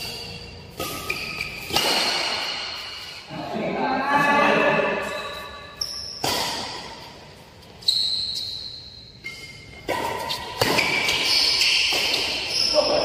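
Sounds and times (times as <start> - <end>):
shoes squeaking on court floor: 0.0 - 3.2, 5.0 - 13.0
racket hitting shuttlecock: 0.0 - 3.3, 5.1 - 7.3, 9.2 - 13.0.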